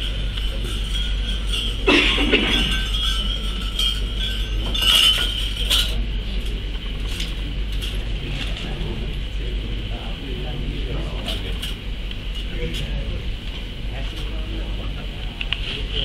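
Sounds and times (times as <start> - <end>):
low electrical hum: 0.0 - 16.0
glass clinking on table: 0.1 - 6.0.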